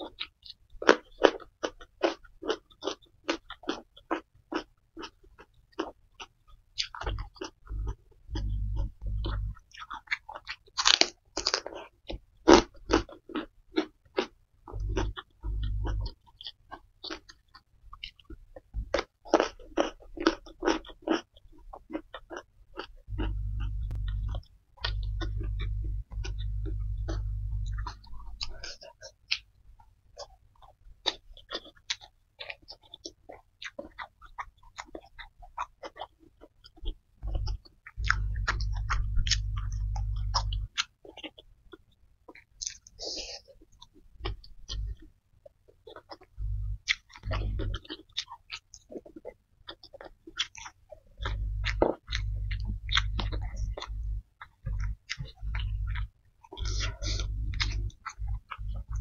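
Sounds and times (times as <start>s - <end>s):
chewing and mouth clicks: 0.0s - 59.0s
low dull rumble: 7.1s - 9.6s, 14.8s - 16.1s, 23.1s - 28.7s, 37.2s - 40.7s, 46.3s - 47.8s, 51.2s - 59.0s
brief low rumbles: 23.1s - 28.2s, 56.6s - 59.0s.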